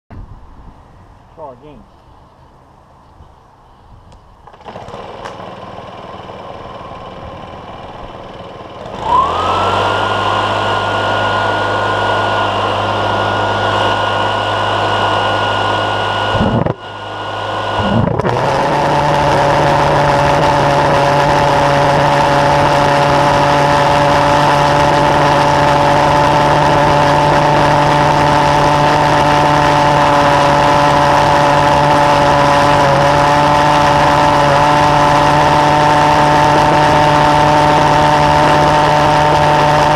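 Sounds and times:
leaf blower running: 4.4s - 39.9s
pulse jet roaring: 8.8s - 39.9s.

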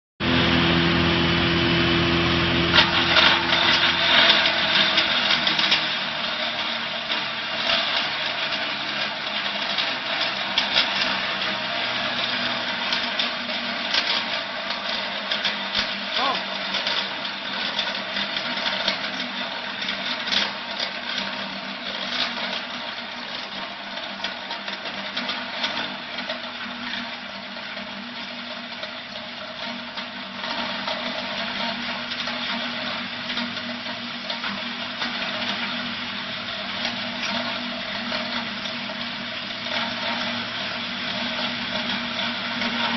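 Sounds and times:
crusher machine humming: 0.2s - 20.2s, 22.4s - 42.9s
rattle of wood chips: 2.7s - 42.9s.

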